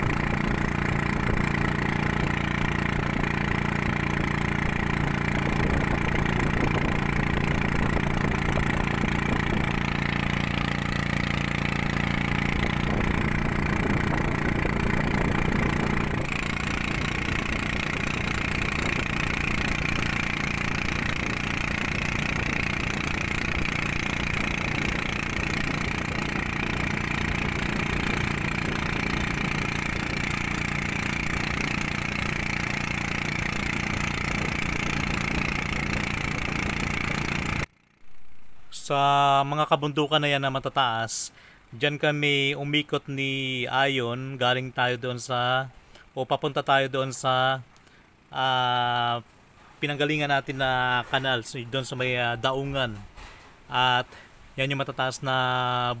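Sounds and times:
motor boat engine droning: 0:00.0 - 0:39.5.

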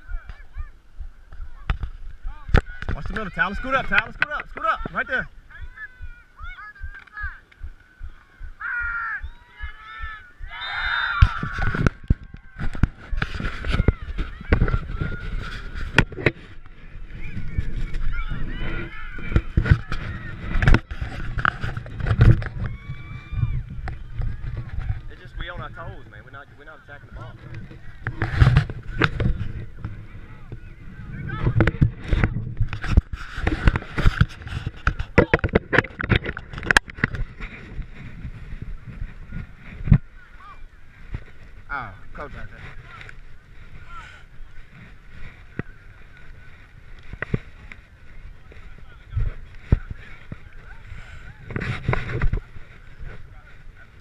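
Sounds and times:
fingers knocking on camera housing: 0:06.8 - 0:08.7.

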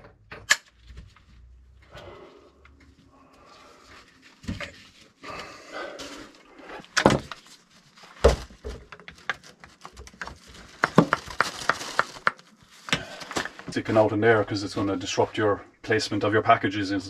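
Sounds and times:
rustling: 0:00.8 - 0:14.1.

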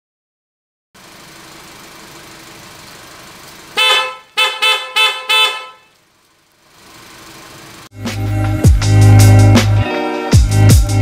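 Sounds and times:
two-tone car horn blasts: 0:03.8 - 0:06.0.

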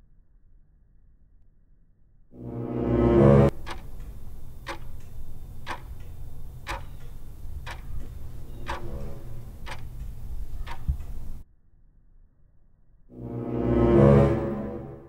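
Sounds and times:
musical tone: 0:02.4 - 0:03.8, 0:13.2 - 0:15.0
clock ticking: 0:03.5 - 0:11.4.

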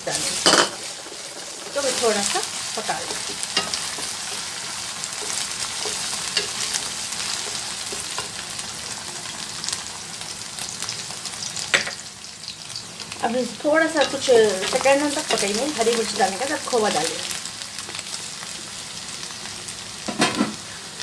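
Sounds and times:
onions sizzling in oil: 0:00.0 - 0:21.0
spatula scraping and tapping pan: 0:02.8 - 0:08.4.

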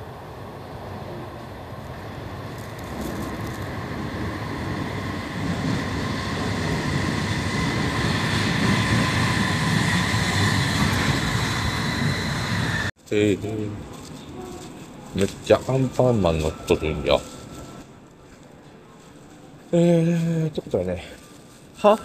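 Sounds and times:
train rumbling into station: 0:00.0 - 0:19.6
high whine: 0:02.6 - 0:13.4, 0:15.1 - 0:18.0.

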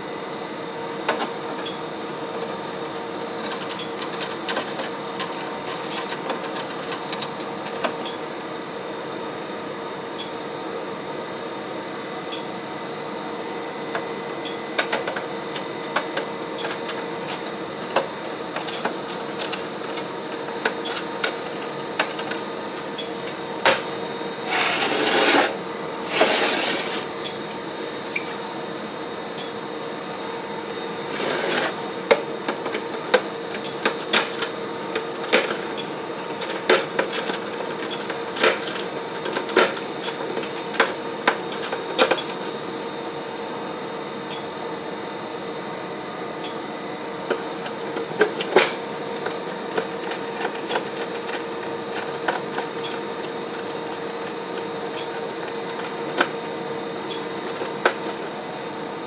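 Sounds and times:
whirring or scraping: 0:24.4 - 0:27.1.

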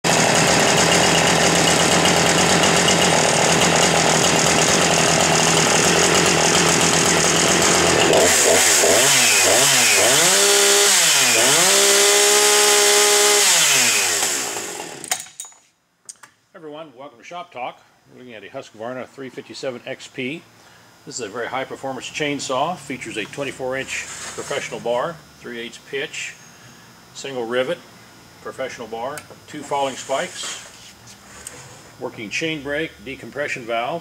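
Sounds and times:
chainsaw idling and revving: 0:00.1 - 0:15.3.

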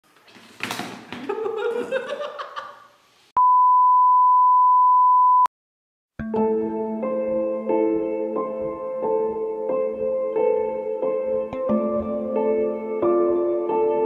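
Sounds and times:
man laughing: 0:01.2 - 0:02.9
loud test beep tone: 0:03.4 - 0:05.5
soft piano music: 0:06.2 - 0:14.0.

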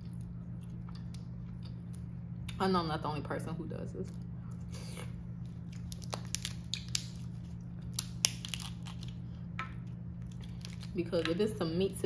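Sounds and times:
steady low hum: 0:00.0 - 0:12.0
lobster shell cracking: 0:05.7 - 0:09.2, 0:10.2 - 0:11.0.

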